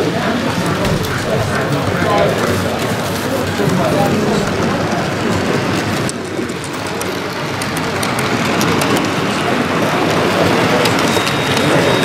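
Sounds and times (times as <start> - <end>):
model train rolling on track: 0.0 - 12.0
rapid ticks from wheels: 0.6 - 12.0.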